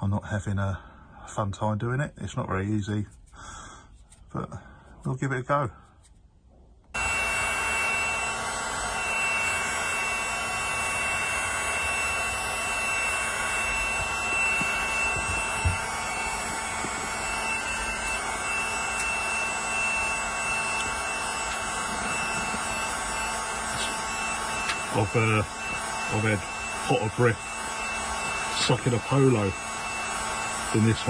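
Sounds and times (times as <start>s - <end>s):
hot air gun fan whine: 6.8s - 31.0s.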